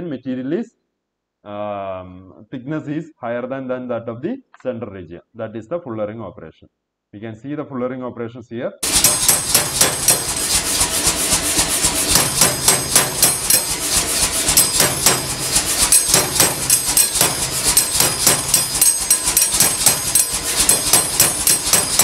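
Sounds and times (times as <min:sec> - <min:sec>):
low machine hum: 0:08.8 - 0:22.0
power hammer striking hot steel: 0:08.8 - 0:22.0.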